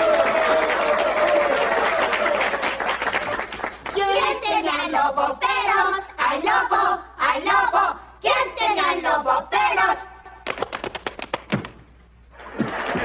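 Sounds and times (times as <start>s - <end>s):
applause: 0.0s - 4.0s, 10.4s - 11.8s, 12.4s - 13.0s
voices singing a children's song: 3.9s - 10.4s
sharp claps: 10.4s - 11.8s, 12.4s - 13.0s.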